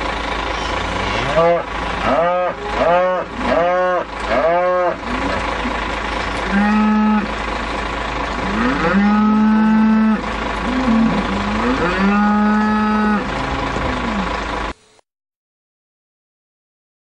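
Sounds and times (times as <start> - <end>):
cattle mooing: 0.5 - 7.6, 8.2 - 14.5.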